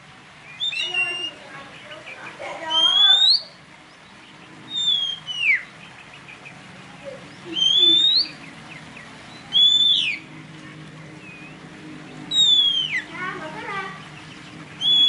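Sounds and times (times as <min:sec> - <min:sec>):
songbird whistling: 0:00.4 - 0:02.1, 0:02.7 - 0:06.6, 0:07.3 - 0:10.3, 0:11.2 - 0:11.6, 0:12.2 - 0:13.2, 0:14.2 - 0:15.0.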